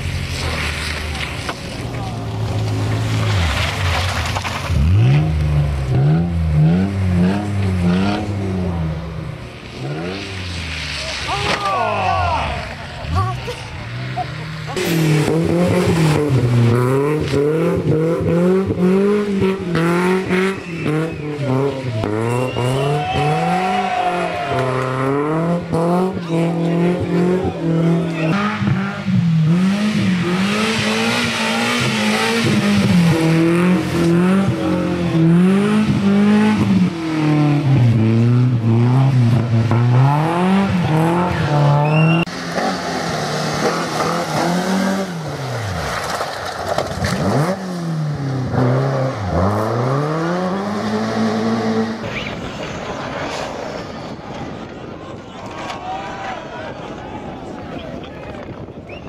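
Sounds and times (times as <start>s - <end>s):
rally car engines revving: 0.0s - 59.0s
sharp cracks and clatters: 0.3s - 5.5s, 45.8s - 47.6s
tyre squeal: 41.8s - 42.3s, 52.0s - 54.1s.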